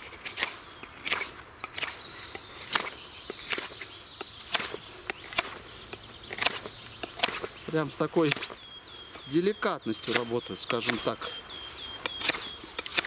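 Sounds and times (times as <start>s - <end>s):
knife shaving wood: 0.0s - 2.0s, 9.9s - 11.2s, 12.1s - 13.0s.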